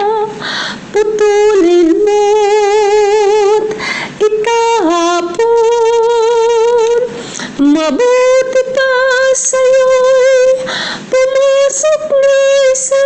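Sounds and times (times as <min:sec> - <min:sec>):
woman singing a hymn: 0:00.0 - 0:13.0
singer breathing: 0:00.4 - 0:00.9, 0:03.7 - 0:04.2, 0:07.1 - 0:07.6, 0:10.6 - 0:11.1.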